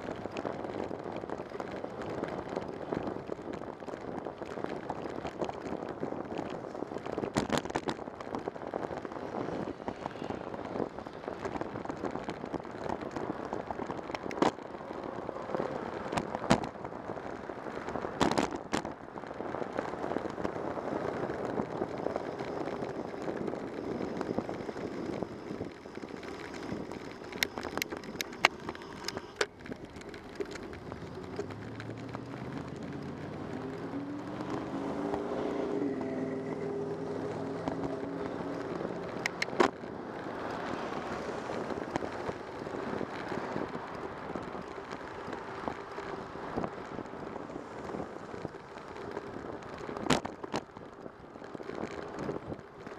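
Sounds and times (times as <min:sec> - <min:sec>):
bicycle road and wind noise: 0:00.0 - 0:52.9
vehicle engine accelerating: 0:20.8 - 0:44.2.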